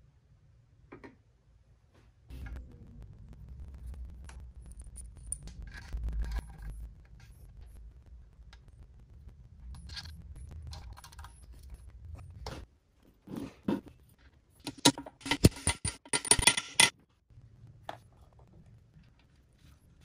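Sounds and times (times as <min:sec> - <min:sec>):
metal engine parts clicking and scraping: 0:04.7 - 0:07.8, 0:09.7 - 0:12.6, 0:14.1 - 0:16.9.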